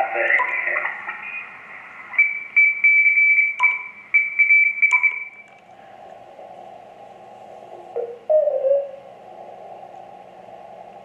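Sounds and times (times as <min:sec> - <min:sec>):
radio band hiss: 0:00.0 - 0:02.3
morse code tone: 0:02.2 - 0:05.5
short radio beeps with clicks: 0:02.2 - 0:05.6.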